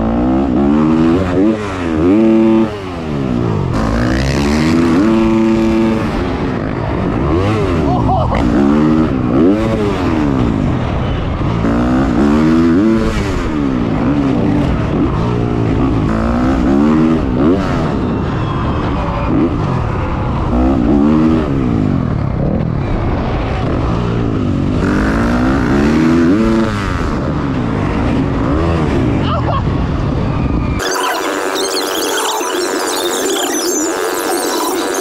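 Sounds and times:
dirt bike engine revving: 0.0s - 11.0s, 11.6s - 18.0s, 24.7s - 29.2s, 30.8s - 35.0s.

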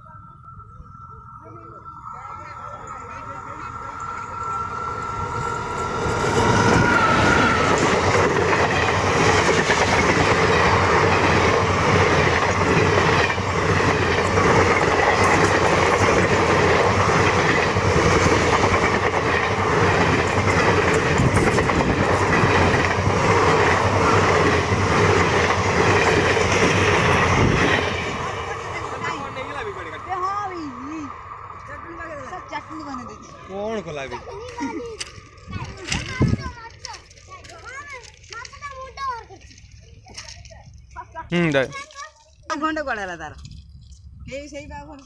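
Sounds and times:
train wheels rushing on rail: 1.8s - 41.9s
clacks over rail joints: 34.4s - 41.1s.

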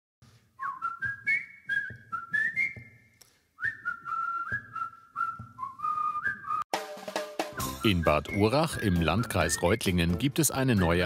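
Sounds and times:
whistled tune: 0.6s - 6.7s, 7.4s - 11.0s
light drum beat: 6.7s - 9.3s.

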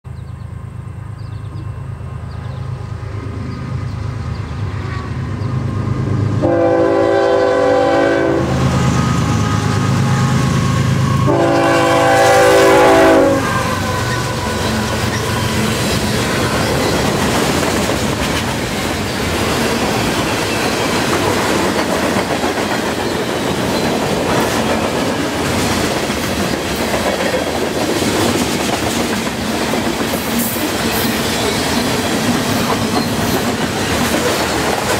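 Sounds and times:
diesel locomotive rumbling: 0.1s - 34.9s
train horn: 6.4s - 16.9s
freight cars clattering on rails: 14.2s - 34.9s.

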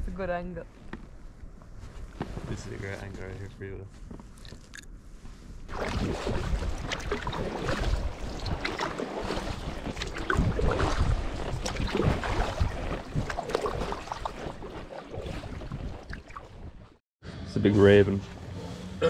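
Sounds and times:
wind rumbling on microphone: 5.0s - 16.9s
water splashing around kayak: 5.7s - 17.0s.

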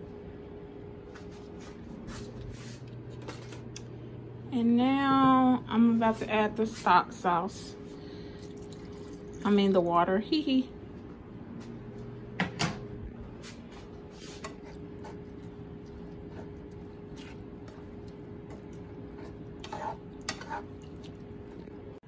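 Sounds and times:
steady low hum: 0.0s - 22.0s
wooden spoon stirring in a skillet: 13.5s - 21.9s.

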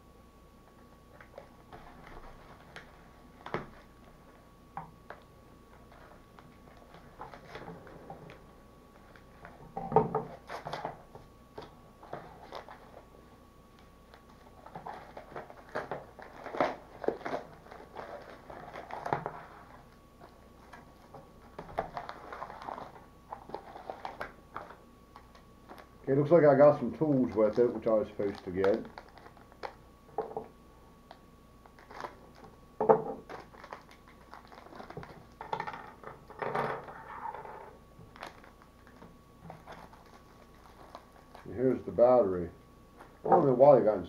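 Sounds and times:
paper and plastic crinkling: 5.8s - 9.6s, 11.6s - 13.0s, 14.1s - 29.8s, 31.0s - 32.6s, 33.2s - 36.1s, 38.0s - 41.8s.

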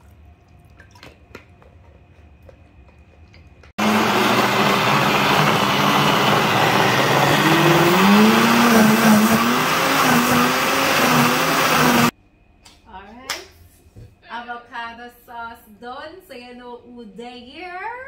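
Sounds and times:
blender motor running: 3.8s - 12.1s.

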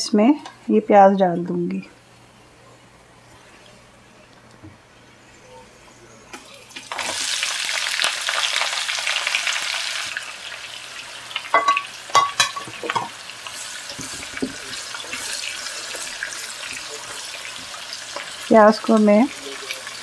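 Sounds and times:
onions sizzling in hot oil: 6.6s - 20.0s.

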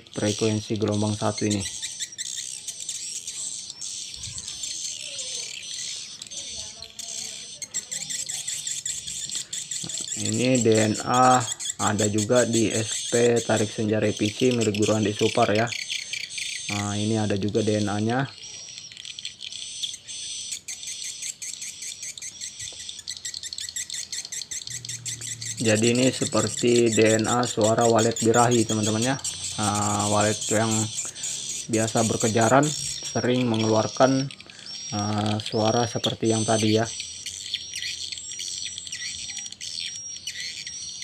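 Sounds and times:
swiftlet calls through speakers: 19.5s - 41.0s.

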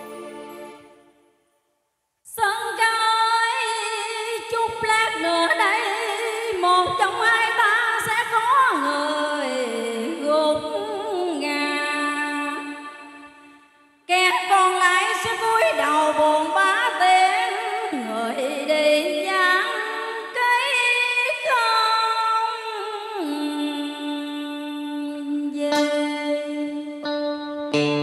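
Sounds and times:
backing music: 0.0s - 1.2s
woman singing with vibrato: 2.3s - 13.4s, 14.1s - 27.6s.

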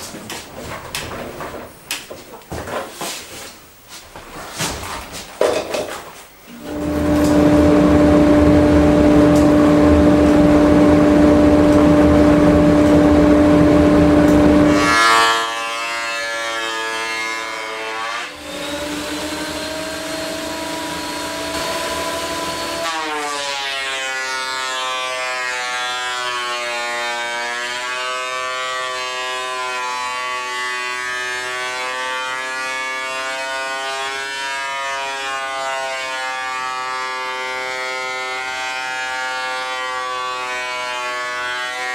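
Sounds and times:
motor hum: 6.5s - 14.8s
planer cutting wood: 6.5s - 41.9s.

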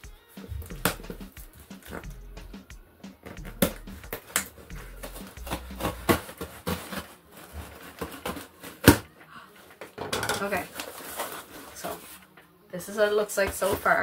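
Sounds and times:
cardboard box rustling: 4.9s - 9.0s, 10.5s - 12.2s.

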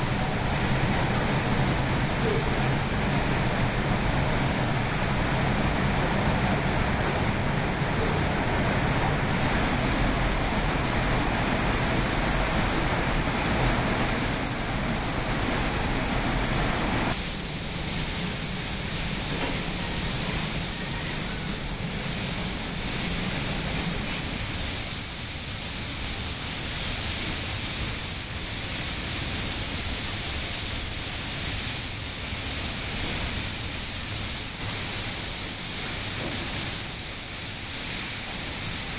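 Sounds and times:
industrial hiss and rumble: 0.0s - 38.9s
spray guns hissing: 9.3s - 10.0s, 14.2s - 15.9s, 17.1s - 38.9s.

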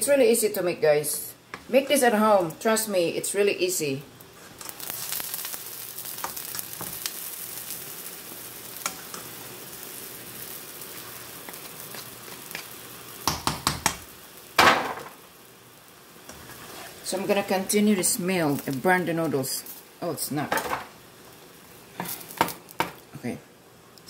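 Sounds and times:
food sizzling in a pan: 0.0s - 24.0s
spatulas scraping a pan: 16.3s - 18.2s.

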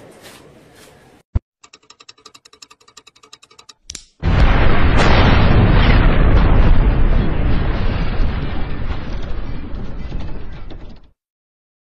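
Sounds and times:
deep rumbling explosion: 4.2s - 11.1s.

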